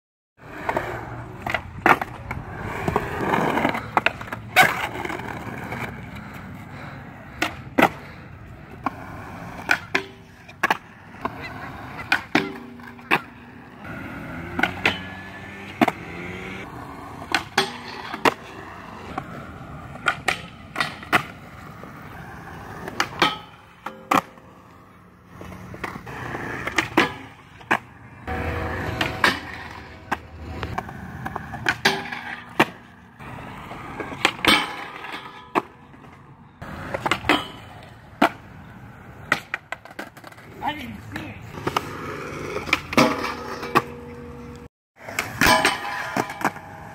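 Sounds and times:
skateboard wheels rolling on concrete: 0.4 - 46.9
skateboard clacks: 0.5 - 24.7, 25.4 - 38.5, 39.2 - 40.5, 41.1 - 46.9
trucks grinding on metal bar: 13.8 - 19.2, 28.2 - 35.5.

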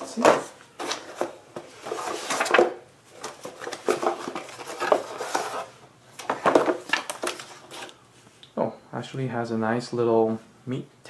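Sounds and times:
cardboard and paper rustling: 0.0 - 8.0.

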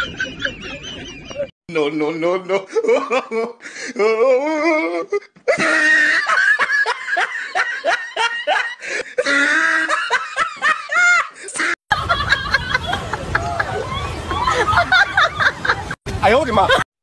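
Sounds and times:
loud laughter: 0.0 - 1.5, 5.5 - 16.8.

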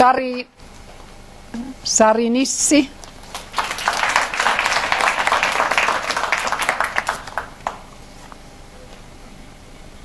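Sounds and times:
audience applauding: 3.2 - 7.9.

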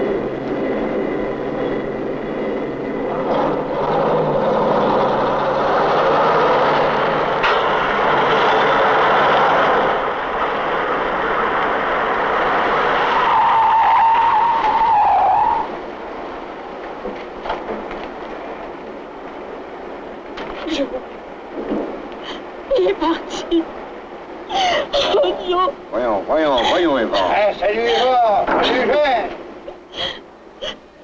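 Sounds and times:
car driving fast: 2.4 - 17.1
tyre squeal: 13.1 - 15.7.

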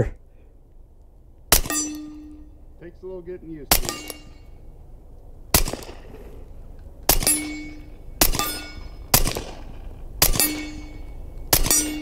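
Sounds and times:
suppressed pistol shots: 1.5 - 2.3, 3.7 - 4.4, 5.5 - 6.4, 7.0 - 12.0
steel target clanging: 1.5 - 2.6, 3.6 - 4.6, 7.1 - 12.0.

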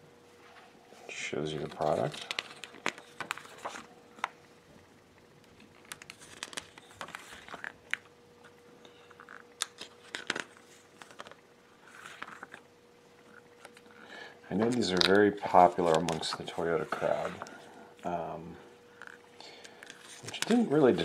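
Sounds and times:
paper pages rustling: 1.6 - 4.3, 5.5 - 8.0, 9.2 - 12.6, 14.6 - 17.6, 19.8 - 21.0.

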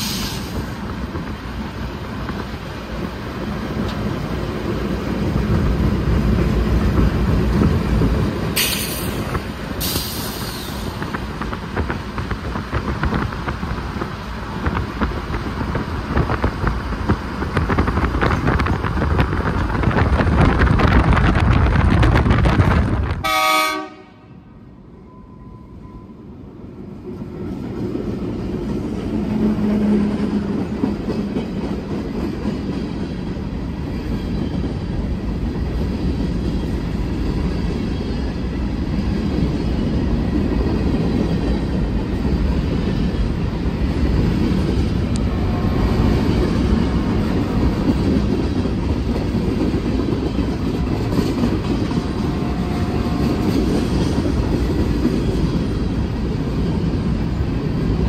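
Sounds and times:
diesel locomotives passing: 0.0 - 58.0
wheels clickety-clack: 2.0 - 23.2, 27.5 - 37.9, 45.9 - 57.0.

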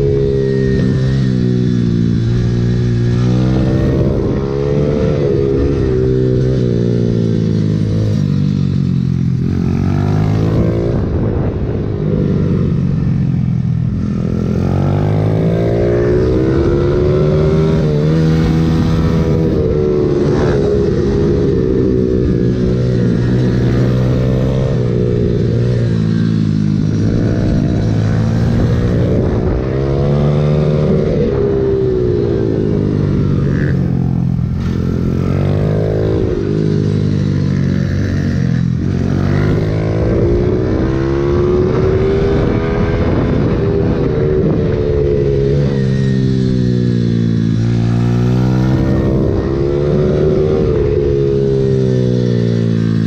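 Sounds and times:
motorbike engine revving: 0.0 - 53.0.

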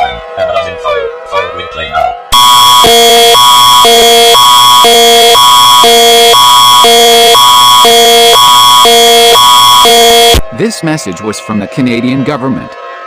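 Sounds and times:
constant high tone: 0.0 - 13.0
alternating electronic alert tone: 2.3 - 10.4.

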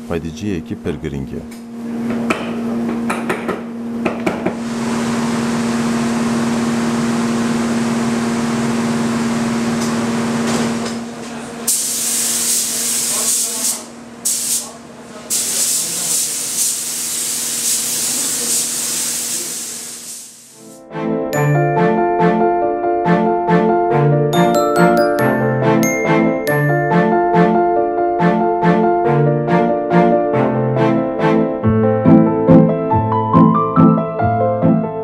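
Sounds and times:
knocks: 2.1 - 4.6
spray gun hissing: 11.7 - 14.7, 15.3 - 20.8.

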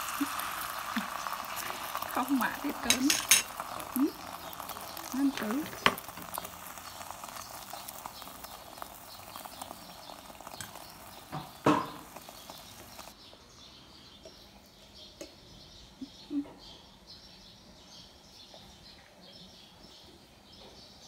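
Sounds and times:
egg sizzling in oil: 0.0 - 13.2
metal tongs clinking against pan: 2.8 - 3.9.

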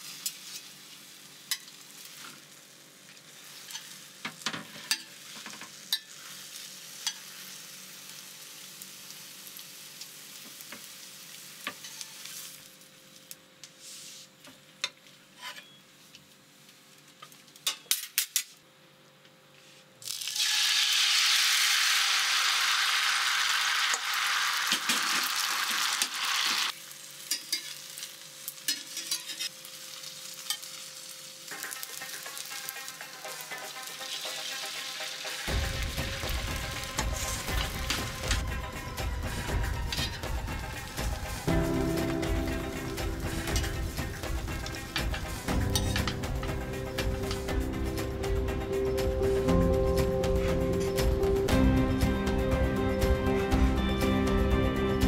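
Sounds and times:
egg frying sizzle: 0.0 - 13.4, 20.0 - 49.5
loud sizzling hiss: 0.0 - 14.4, 20.1 - 55.0
metal utensils scraping frying pan: 27.3 - 27.8, 28.7 - 29.5, 43.2 - 46.2.

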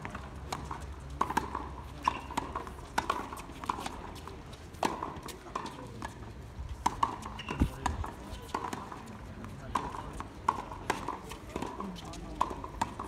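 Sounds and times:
tennis balls struck and bouncing: 0.0 - 13.0.

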